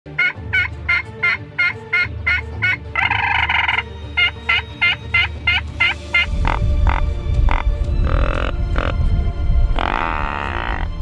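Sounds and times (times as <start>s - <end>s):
turkey call yelps: 0.2s - 8.9s.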